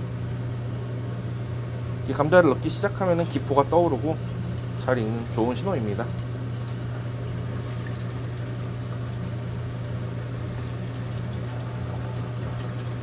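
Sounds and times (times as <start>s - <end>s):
steady low hum: 0.0s - 13.0s
oil bubbling and sizzling: 3.0s - 13.0s.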